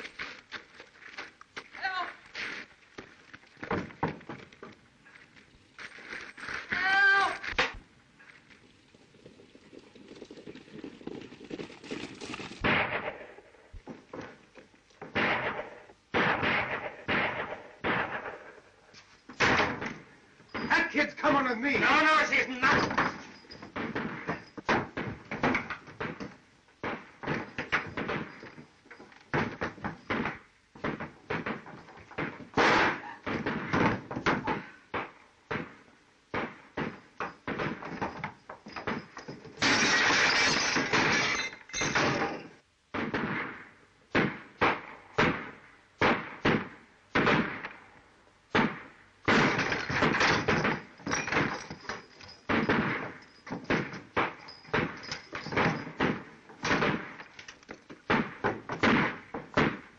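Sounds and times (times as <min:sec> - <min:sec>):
fistfight thuds and scuffles: 0:29.3 - 0:39.6, 0:57.8 - 0:59.9
glass breaking: 0:36.8 - 0:42.6, 0:49.3 - 0:58.9.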